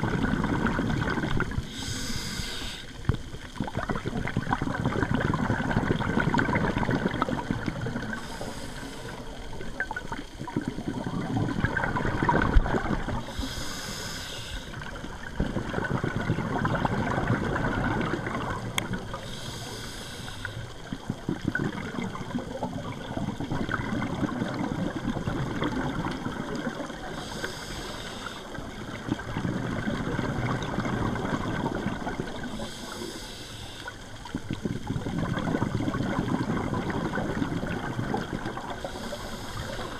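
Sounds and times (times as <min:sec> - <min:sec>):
exhaled air bubbling: 0:00.0 - 0:39.9
diver breathing through regulator: 0:01.6 - 0:03.1, 0:07.9 - 0:09.6, 0:13.1 - 0:15.0, 0:19.1 - 0:20.9, 0:27.0 - 0:28.7, 0:32.4 - 0:34.2, 0:38.6 - 0:39.9.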